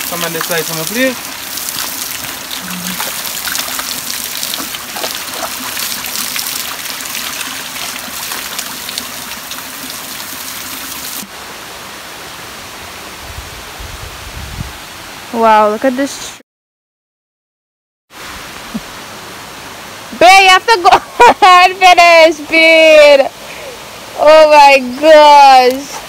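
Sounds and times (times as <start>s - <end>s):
waterfall splashing onto rocks: 0.0s - 11.3s.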